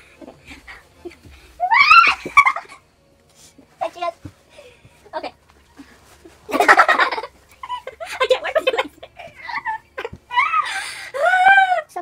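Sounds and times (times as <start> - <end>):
girls giggling: 0.0 - 2.9, 5.8 - 11.8.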